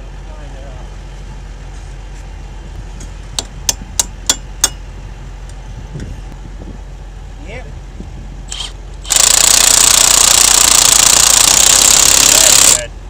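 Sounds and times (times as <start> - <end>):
low engine hum: 0.0 - 13.0.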